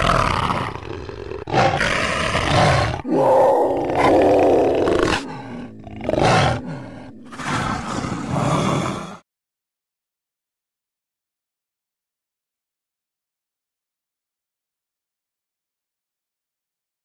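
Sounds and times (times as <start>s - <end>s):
big cat growling and roaring: 0.0s - 9.2s.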